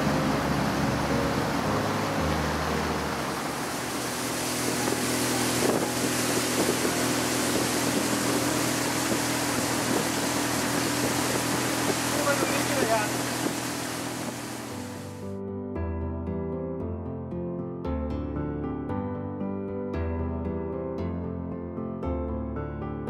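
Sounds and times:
water rushing: 0.0 - 15.2
motorboat engine droning: 0.0 - 15.3.

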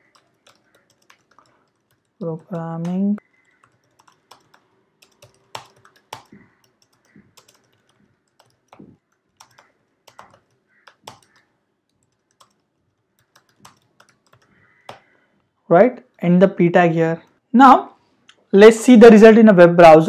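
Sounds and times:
typing on computer keyboard: 0.0 - 15.1.

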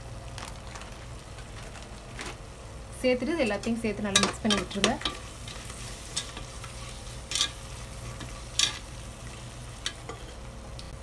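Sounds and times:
low sizzle of frying: 0.0 - 11.0
metal spatula scraping a pot: 4.2 - 8.8, 9.8 - 10.4.

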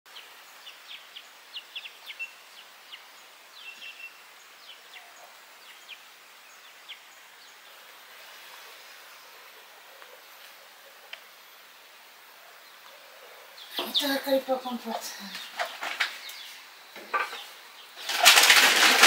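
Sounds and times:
small birds chirping: 0.1 - 18.9
steady background hiss: 0.1 - 19.0
whistled bird notes: 0.9 - 4.2.

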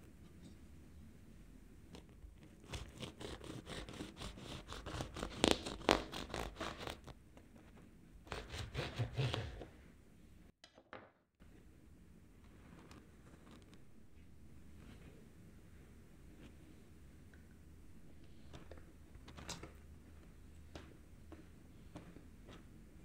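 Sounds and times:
knife sawing through muffin: 2.6 - 7.0, 8.3 - 9.7
knife scraping paper liner: 2.6 - 7.1, 8.3 - 9.6.

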